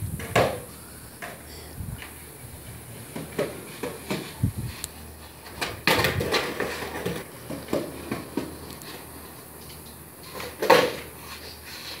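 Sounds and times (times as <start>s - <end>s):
skateboard smacking concrete: 0.2s - 1.4s, 3.1s - 4.4s, 5.4s - 11.4s
skateboard clattering on concrete: 0.2s - 12.0s.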